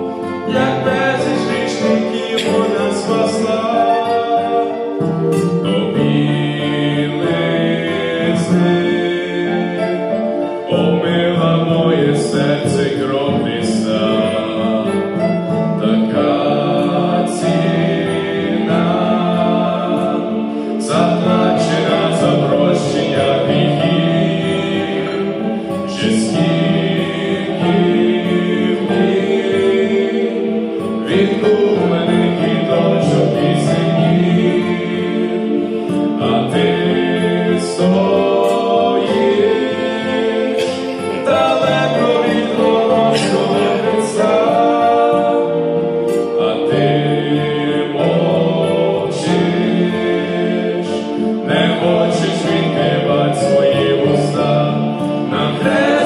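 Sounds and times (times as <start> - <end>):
men singing a hymn in harmony: 0.0 - 56.0.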